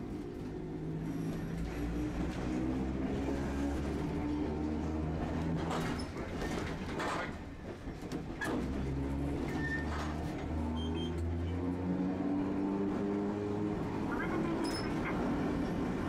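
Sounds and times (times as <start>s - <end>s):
streetcar motor hum: 0.0s - 16.0s
wheels clacking over rail joints: 3.7s - 10.6s.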